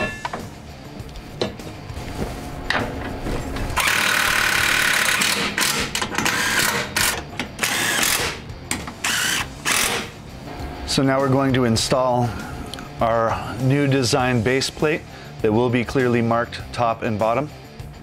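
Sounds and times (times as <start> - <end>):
cordless power tool driving bolts: 3.8 - 10.1.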